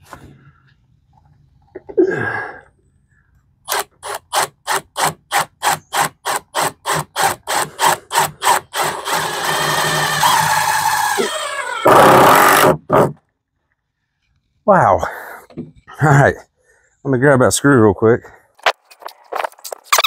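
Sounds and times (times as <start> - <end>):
power drill driving a screw: 3.7 - 13.2.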